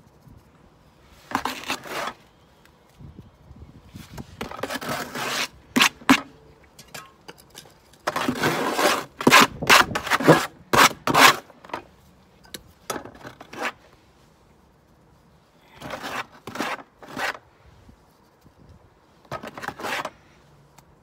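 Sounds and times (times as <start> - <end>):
trowel scraping mortar in bucket: 1.2 - 2.2, 4.4 - 6.2, 8.0 - 11.5, 15.8 - 17.4, 19.3 - 20.2.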